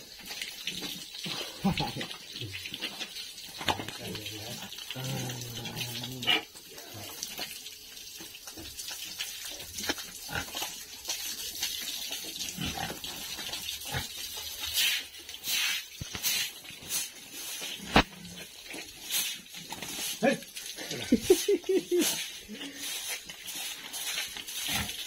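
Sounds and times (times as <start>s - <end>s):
hose water splashing: 0.0s - 25.0s
pigs grunting: 3.8s - 7.4s, 10.2s - 10.8s, 12.4s - 14.5s.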